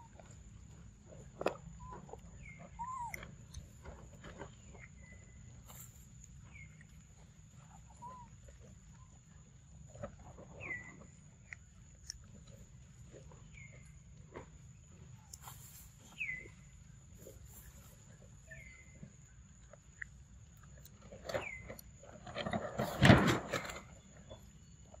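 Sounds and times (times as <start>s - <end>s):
monkey chewing and smacking: 0.0s - 22.4s
high insect hum: 0.0s - 25.0s
whistled bird calls: 1.8s - 3.3s, 7.9s - 8.3s, 16.1s - 16.6s.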